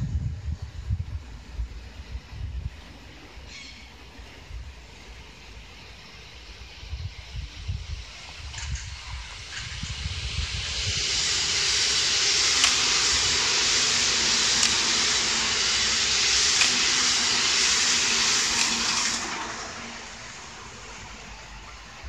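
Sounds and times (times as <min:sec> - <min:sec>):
wind rumble on microphone: 0:00.0 - 0:03.5, 0:06.6 - 0:11.7
train wheels rushing on rail: 0:00.0 - 0:22.0.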